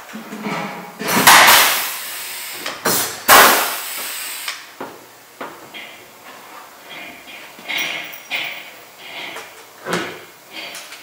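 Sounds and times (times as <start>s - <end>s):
hissing rush of air: 1.3s - 4.7s.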